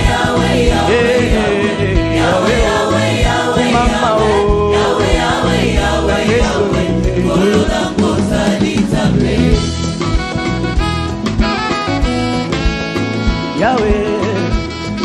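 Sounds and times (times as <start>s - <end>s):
voices singing gospel together: 0.0s - 10.2s
bass and drums: 0.0s - 15.0s.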